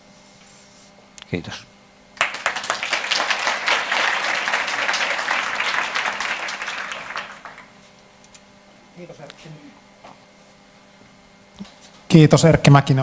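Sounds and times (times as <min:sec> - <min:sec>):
audience applauding: 0:02.2 - 0:07.8.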